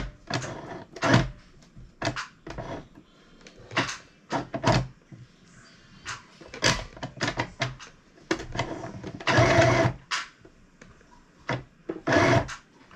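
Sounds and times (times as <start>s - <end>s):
sewing machine stitching: 8.5s - 10.0s, 11.9s - 12.6s.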